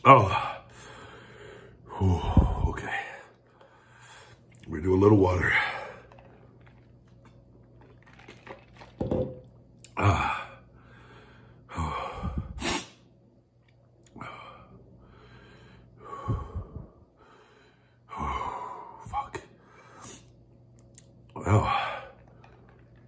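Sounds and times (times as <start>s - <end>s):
man breathing hard: 0.4s - 4.4s, 10.1s - 12.7s, 14.2s - 20.3s.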